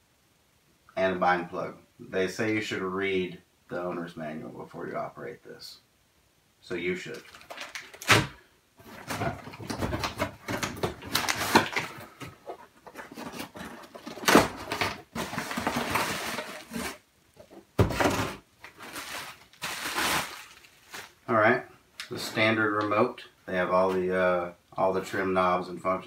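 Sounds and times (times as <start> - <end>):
packaging rustling and scraping: 7.1 - 21.2.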